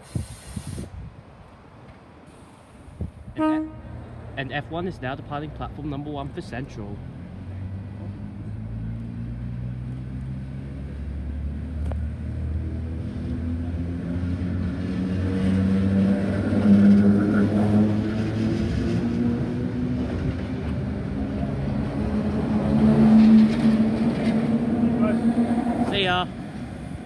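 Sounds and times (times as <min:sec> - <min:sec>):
train wheels rumbling: 0:13.0 - 0:27.0.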